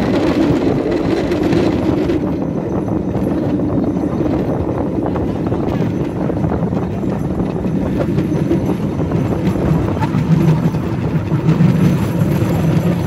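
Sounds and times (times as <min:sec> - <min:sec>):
wheels rumbling on rails: 0:00.0 - 0:13.0
small engine drone: 0:07.8 - 0:13.0.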